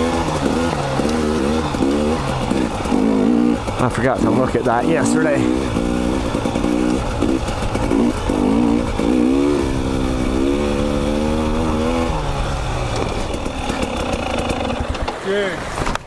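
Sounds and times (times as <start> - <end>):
dirt bike engine revving: 0.0 - 16.0
sharp clicks and knocks: 0.1 - 3.0.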